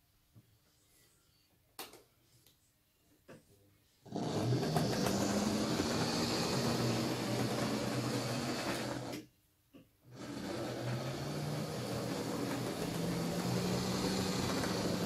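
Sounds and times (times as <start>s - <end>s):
model train motor and wheels: 4.1s - 9.2s, 10.1s - 15.0s.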